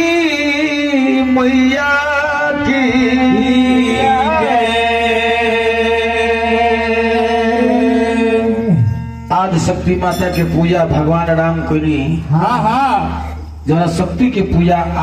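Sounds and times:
person singing devotional song: 0.0s - 8.9s
music: 0.0s - 15.0s.

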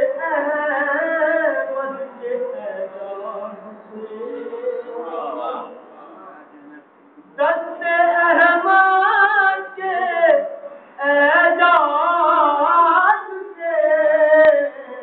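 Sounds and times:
man chanting unaccompanied: 0.0s - 15.0s
breaths: 10.6s - 11.0s.

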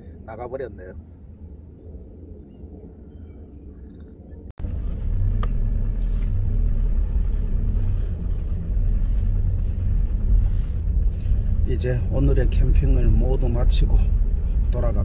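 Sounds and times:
low quiet hum: 0.0s - 15.0s
vehicle rumble from inside: 3.8s - 15.0s.

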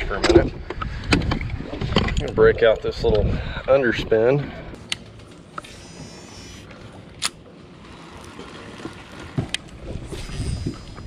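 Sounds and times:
fishing reel spool whirring: 5.6s - 6.7s.

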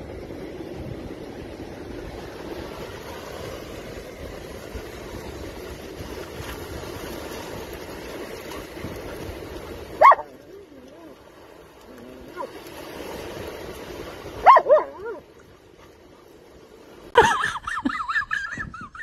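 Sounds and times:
wind noise on microphone: 0.0s - 10.4s, 18.3s - 19.0s
surf washing on beach: 0.0s - 18.6s.

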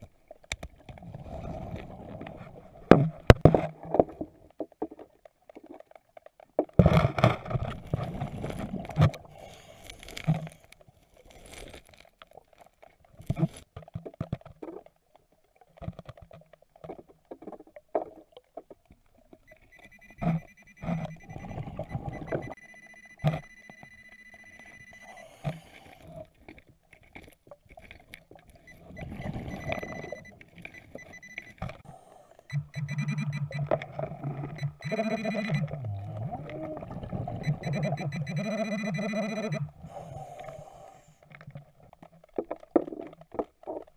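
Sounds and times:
underwater exhaled bubbles rushing: 0.8s - 4.7s, 35.4s - 38.2s
high electronic tone: 19.5s - 25.3s, 28.9s - 31.6s, 32.5s - 33.8s, 34.4s - 36.0s, 37.4s - 39.7s.

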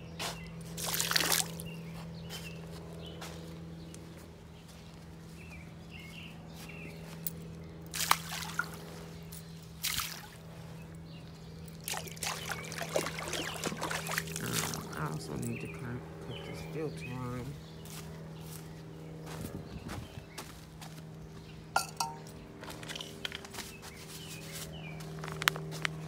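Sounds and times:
water sloshing and trickling: 0.7s - 1.8s, 7.9s - 10.7s, 11.6s - 15.5s
liquid splashing into pool water: 0.8s - 1.7s, 7.9s - 8.9s, 9.8s - 10.4s, 11.8s - 14.9s.

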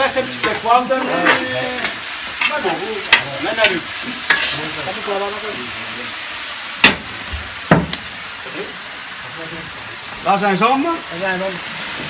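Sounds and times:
meat sizzling in a pot: 0.0s - 12.0s.

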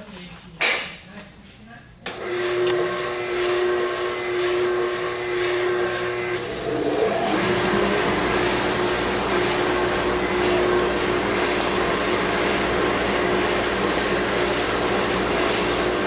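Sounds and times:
spindle sander motor hum and whine: 2.1s - 16.0s
gritty sanding rasp: 6.5s - 16.0s.

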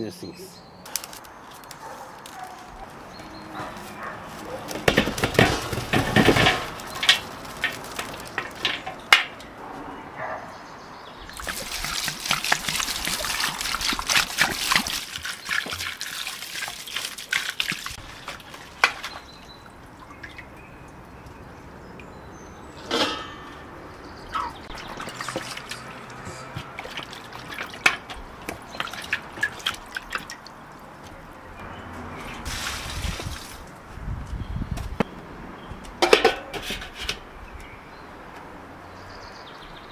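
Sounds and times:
water pouring over vegetables: 11.3s - 19.2s, 32.4s - 33.6s.

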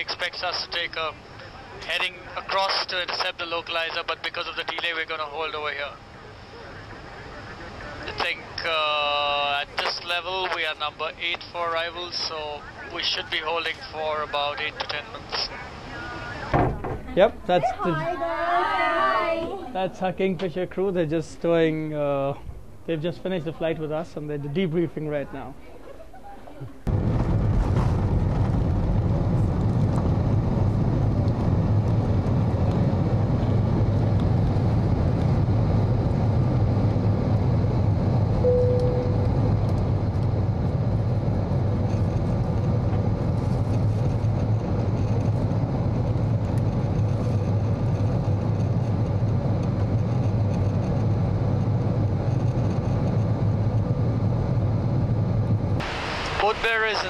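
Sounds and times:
faint steady whine: 0.0s - 25.0s, 28.9s - 57.0s
jet airliner rumble: 0.0s - 25.2s, 26.8s - 57.0s
brief high tone: 38.4s - 39.5s.

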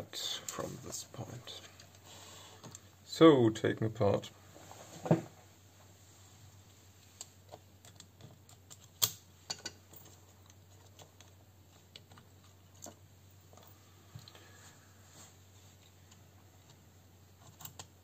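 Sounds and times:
small clicks of parts and tools: 2.6s - 2.8s, 7.1s - 14.4s, 17.4s - 18.0s.

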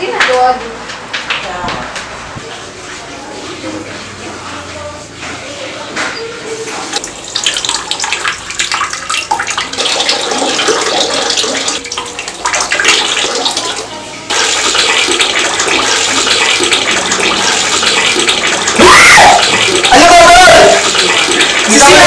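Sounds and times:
running water splashing: 7.0s - 22.0s.

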